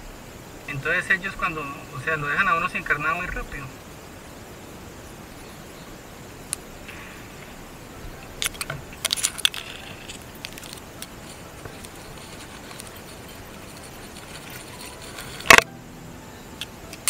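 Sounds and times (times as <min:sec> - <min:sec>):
loud bump: 0:06.8 - 0:09.0
metal clicks and rattling: 0:08.2 - 0:15.7.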